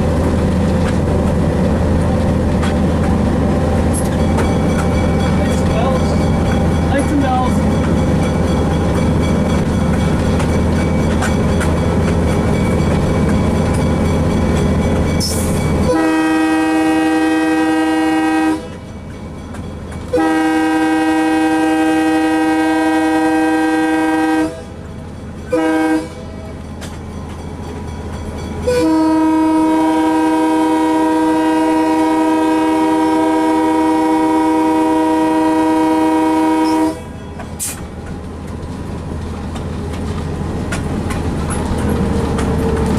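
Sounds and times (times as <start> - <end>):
wheels on rails: 0.0 - 15.9, 36.6 - 42.9
diesel locomotive engine: 0.0 - 42.9
locomotive air horn blasts: 15.8 - 18.8, 20.1 - 24.8, 25.5 - 26.3, 28.7 - 37.1.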